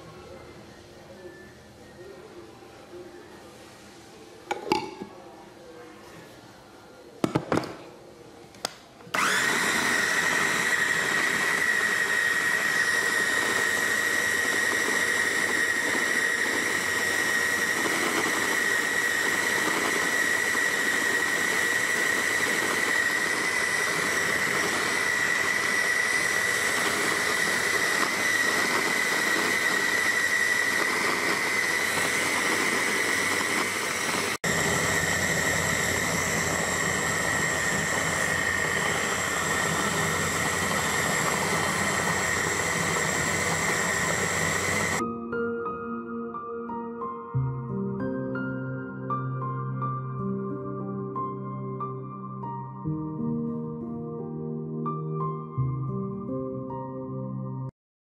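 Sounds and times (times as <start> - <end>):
blender motor whining: 9.1 - 45.0.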